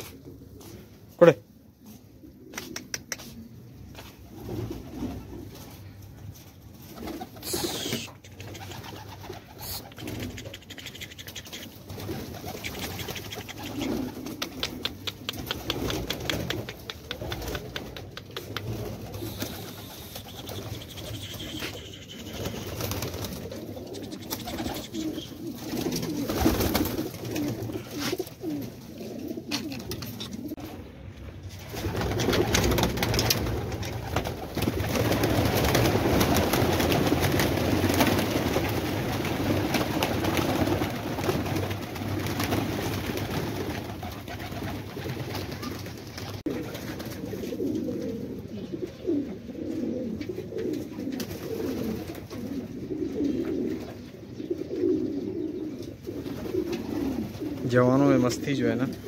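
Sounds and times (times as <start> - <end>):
pigeons cooing: 0.0 - 6.0, 6.8 - 31.0, 31.7 - 59.0
wings flapping: 4.0 - 30.7, 31.5 - 48.0.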